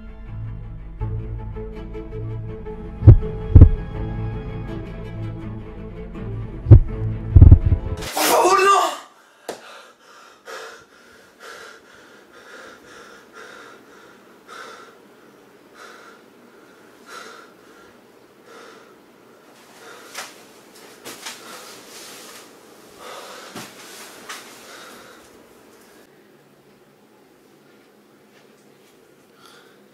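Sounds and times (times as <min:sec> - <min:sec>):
man breathing heavily: 0:09.1 - 0:20.5, 0:21.3 - 0:26.1, 0:29.3 - 0:29.9
bedding rustling: 0:19.5 - 0:25.4.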